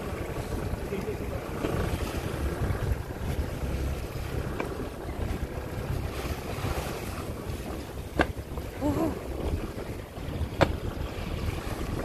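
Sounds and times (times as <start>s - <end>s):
steady low rumble: 0.0s - 12.0s
wind buffeting microphone: 0.0s - 12.0s.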